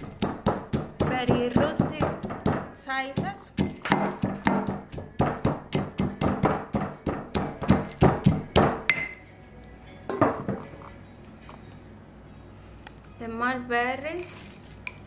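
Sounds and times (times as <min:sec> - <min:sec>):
stone pestle pounding nuts: 0:00.0 - 0:09.1.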